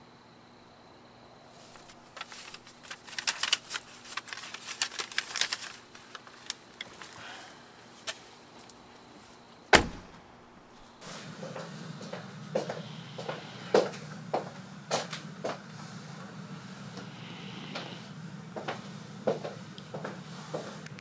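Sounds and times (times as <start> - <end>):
light clicks and rattles: 1.8 - 7.2
heavy thump: 9.7 - 10.4.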